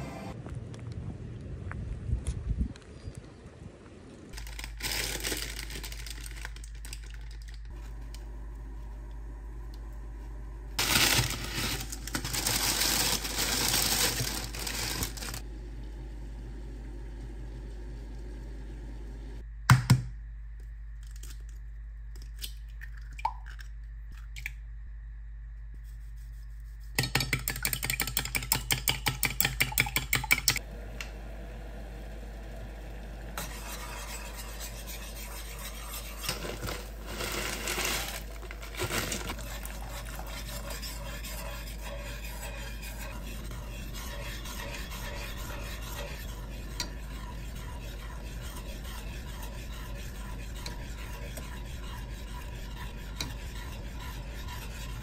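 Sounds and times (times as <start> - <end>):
fork beating eggs in bowl: 26.7 - 30.6, 33.4 - 55.0
metal spoon scraping saucepan: 33.4 - 55.0.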